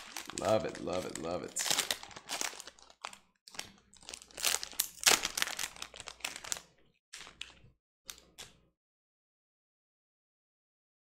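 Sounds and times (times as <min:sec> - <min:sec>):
foil wrapper tearing and crinkling: 0:00.0 - 0:07.6.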